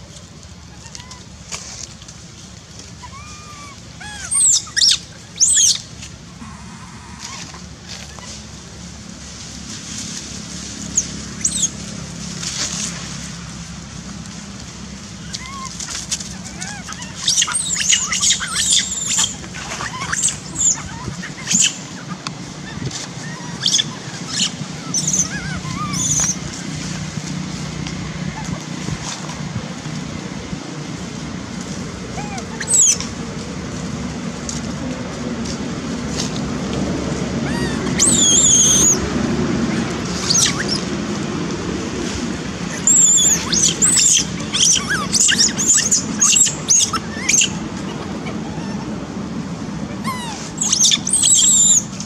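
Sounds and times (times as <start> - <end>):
monkey screaming: 0.7 - 1.3, 3.0 - 5.8, 6.4 - 8.6, 15.2 - 27.0, 32.1 - 33.1, 37.3 - 40.9, 42.7 - 52.0
monkey whimpering: 0.7 - 1.3, 3.0 - 5.8, 6.4 - 8.5, 15.2 - 26.7, 28.2 - 29.4, 32.1 - 33.1, 37.3 - 40.9, 42.7 - 52.0.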